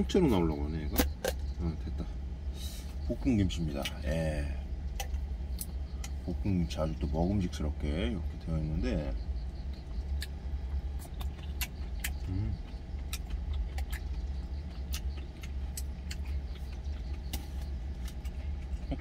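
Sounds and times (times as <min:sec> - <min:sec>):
person humming: 0:12.3 - 0:12.6.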